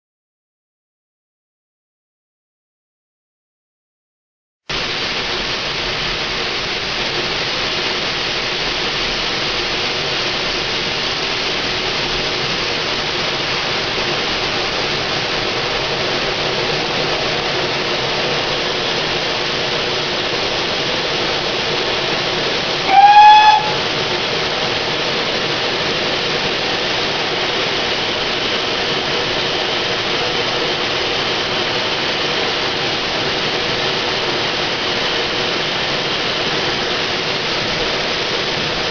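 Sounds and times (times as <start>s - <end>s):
steam hissing: 4.7s - 38.9s
steam locomotive whistle: 22.5s - 25.9s.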